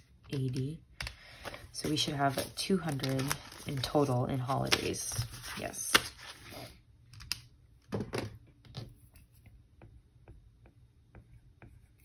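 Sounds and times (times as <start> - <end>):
paper envelopes rustling: 0.3 - 6.8.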